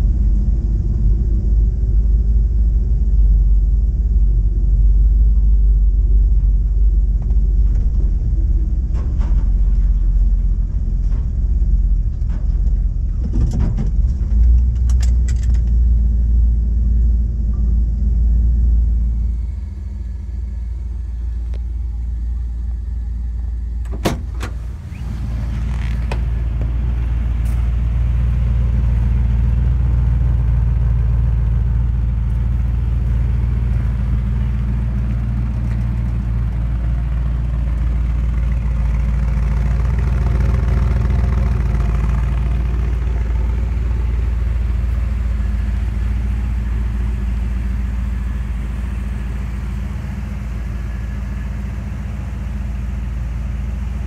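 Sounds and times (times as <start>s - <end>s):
pickup engine idling: 0.0s - 54.0s
cab door opening and shutting: 23.8s - 26.7s.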